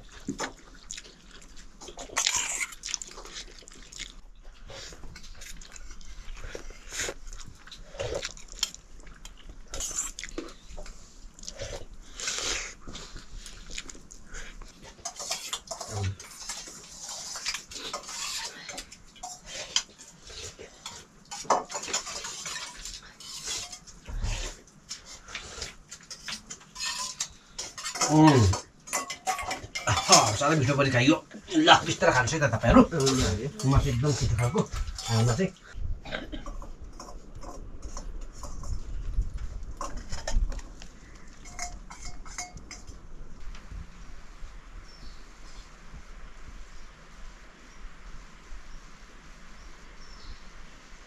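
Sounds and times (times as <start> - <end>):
spoons and dishes clinking: 15.0 - 20.2, 20.8 - 24.0, 25.9 - 30.6, 41.3 - 42.9.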